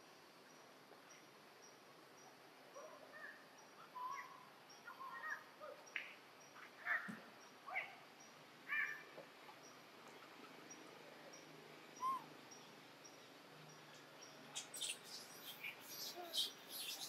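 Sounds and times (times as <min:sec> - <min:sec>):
monkeys squeaky calls: 0:12.0 - 0:12.3, 0:14.6 - 0:17.0.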